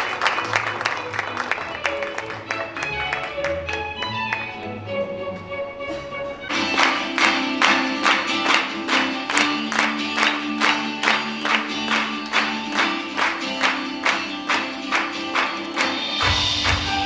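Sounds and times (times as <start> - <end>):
music with sharp beat: 5.4 - 17.0.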